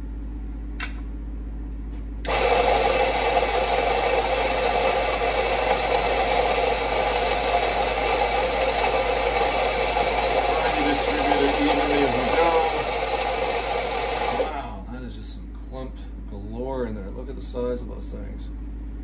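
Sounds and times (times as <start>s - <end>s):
coffee grinder grinding beans: 2.3s - 14.5s.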